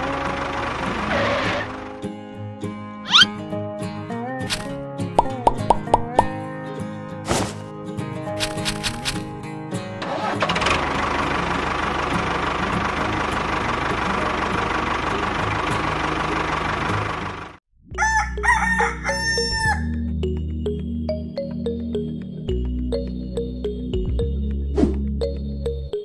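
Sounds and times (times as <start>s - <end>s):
rooster crowing: 17.9s - 20.0s.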